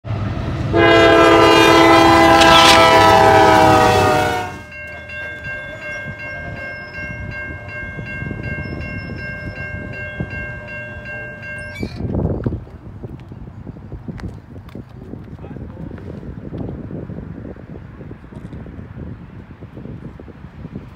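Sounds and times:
locomotive horn blast: 0.6s - 4.8s
railroad crossing bell dinging: 0.8s - 12.5s.

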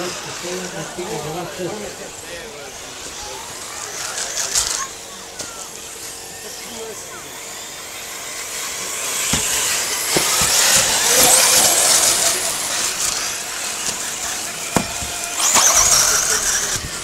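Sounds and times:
rc buggy motors revving: 0.0s - 17.0s
sharp knocks: 14.8s - 15.2s.

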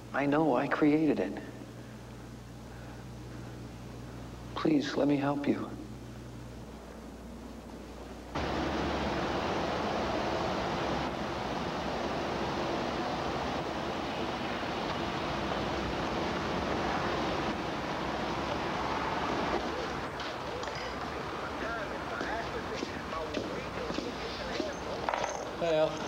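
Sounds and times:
traffic rushing: 8.3s - 26.0s.

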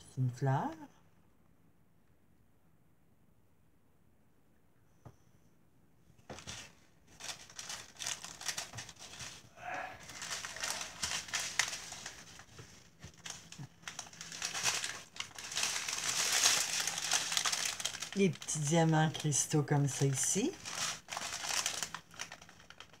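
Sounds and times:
plastic packaging crinkling: 6.3s - 23.0s.

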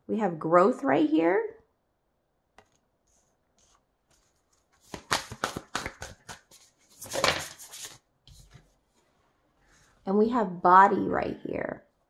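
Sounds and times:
sharp card snaps: 4.9s - 6.5s.

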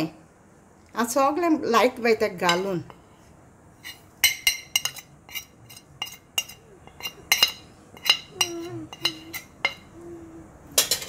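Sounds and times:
metal spoon clinking on plate: 3.8s - 9.9s.

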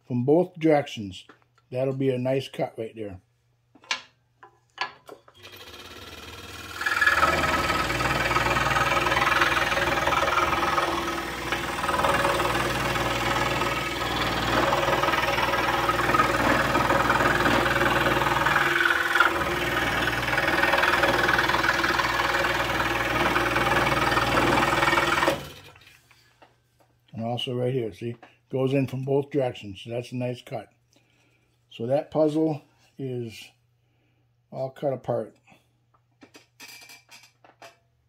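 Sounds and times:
scroll saw cutting wood: 5.4s - 25.9s.

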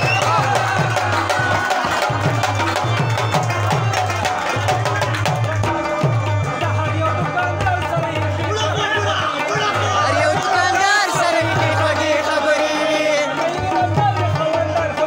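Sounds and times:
rubab and harmonium melody: 0.0s - 15.0s
tabla drumming: 0.0s - 15.0s.

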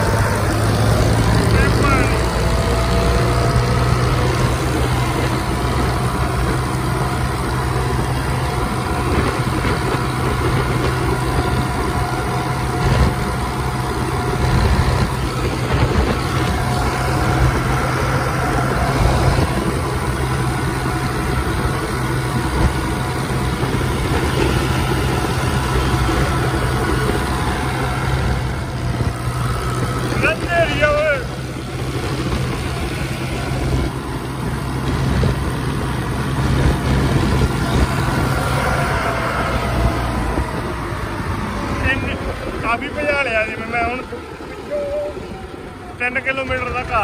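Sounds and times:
wind rushing: 0.0s - 46.0s
tractor engine running: 0.0s - 47.0s.

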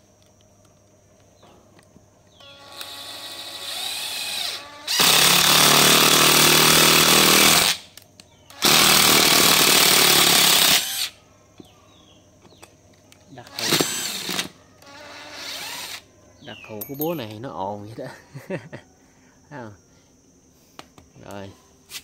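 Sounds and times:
impact driver motor whine: 2.4s - 7.9s, 13.5s - 16.0s.

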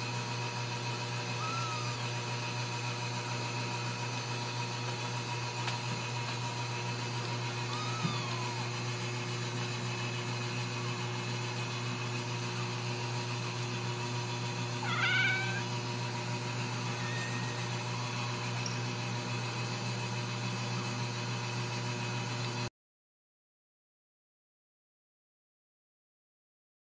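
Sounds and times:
kitten mewing: 1.3s - 2.2s, 7.3s - 9.1s, 14.6s - 15.9s, 16.5s - 18.4s.

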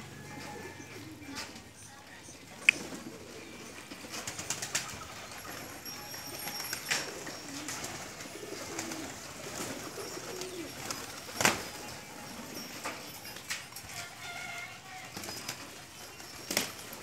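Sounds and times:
pigeons cooing: 0.0s - 17.0s
wing flaps: 2.7s - 13.8s.

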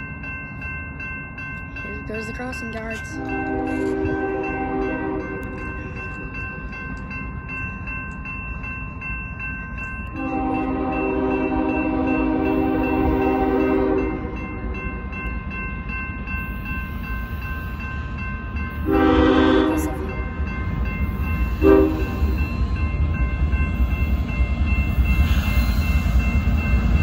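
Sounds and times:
crossing bell ringing: 0.0s - 27.0s
low rumble of train: 0.0s - 27.0s
locomotive air horn: 3.3s - 5.4s, 10.2s - 14.4s, 18.8s - 20.0s, 21.6s - 22.2s.

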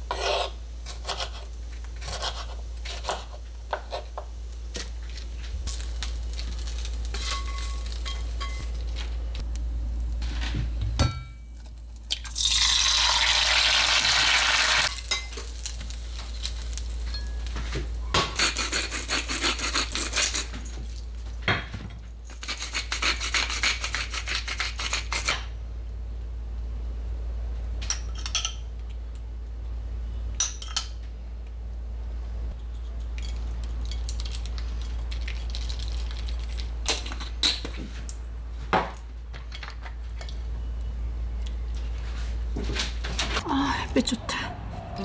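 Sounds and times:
steady low hum: 0.0s - 13.1s, 14.9s - 45.0s
sizzling in a frying pan: 3.5s - 10.3s, 12.1s - 18.6s.

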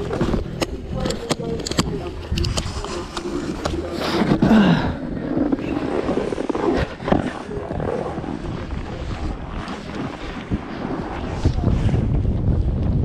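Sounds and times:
wind rumbling on microphone: 0.0s - 13.0s
snowboard scraping on snow: 2.7s - 12.3s.

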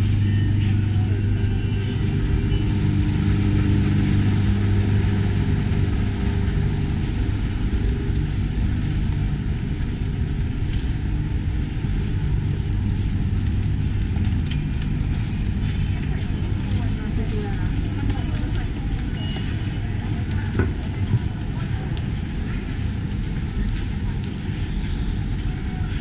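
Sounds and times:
road traffic hum: 0.0s - 25.5s.

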